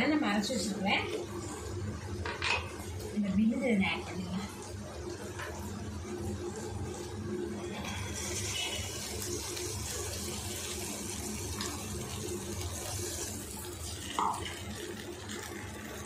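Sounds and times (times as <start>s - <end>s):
paste sizzling in hot oil: 7.6s - 16.0s.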